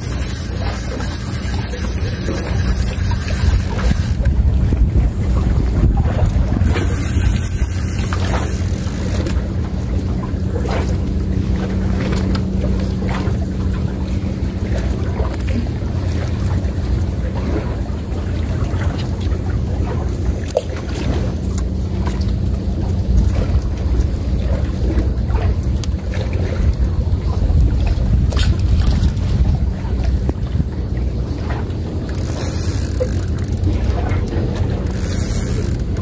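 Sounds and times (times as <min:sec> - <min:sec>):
faint clicks and ticks: 0:00.0 - 0:04.4, 0:31.5 - 0:36.0
wind rumbling on microphone: 0:00.0 - 0:36.0.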